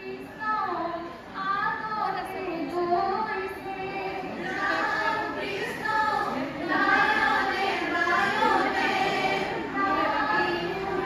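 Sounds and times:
women singing together: 0.0 - 11.0.

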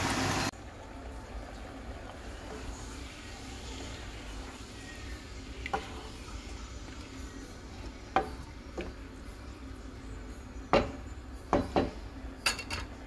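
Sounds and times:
wooden spatula stirring curry: 1.7 - 9.2
spatula knocking against pot: 10.7 - 12.0.

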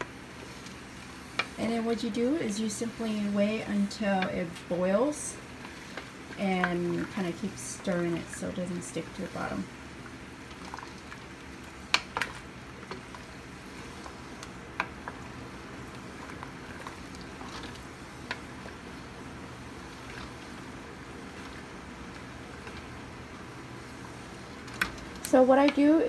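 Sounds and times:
water bubbling in pot: 0.0 - 26.0.

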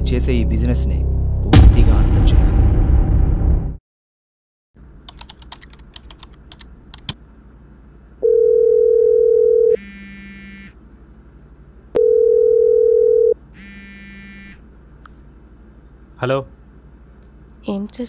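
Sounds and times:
telephone ringback tone: 8.2 - 10.7, 12.0 - 14.5
short buzzing tone: 9.8 - 10.8, 13.6 - 14.6.

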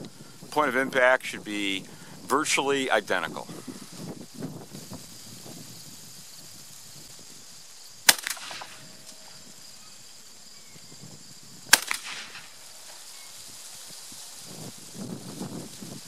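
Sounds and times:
shotgun shots: 8.1 - 9.2, 11.7 - 12.7
fainter crack: 8.1 - 9.3, 11.7 - 13.0.

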